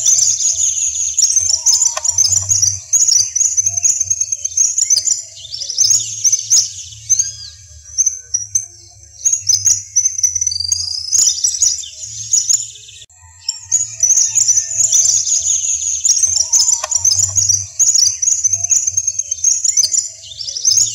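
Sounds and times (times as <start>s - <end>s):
small birds chirping: 0.0s - 20.9s.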